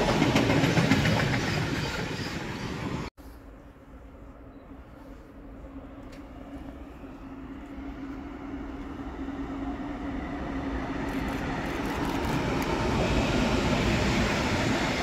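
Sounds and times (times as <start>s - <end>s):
sharp train clicks: 0.0s - 3.0s, 10.9s - 13.1s
freight train rumbling: 0.0s - 15.0s.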